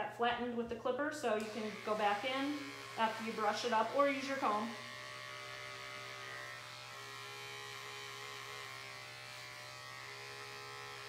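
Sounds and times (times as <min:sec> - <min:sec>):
electric clipper buzzing: 0:01.2 - 0:11.0.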